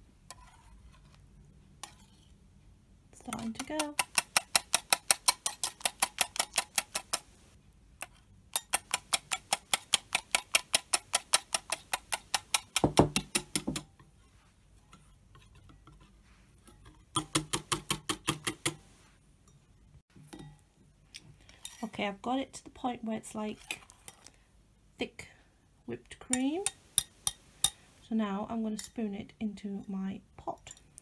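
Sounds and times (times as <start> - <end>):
whisk clicking against bowl: 3.3 - 7.4, 8.5 - 13.8, 17.1 - 18.8.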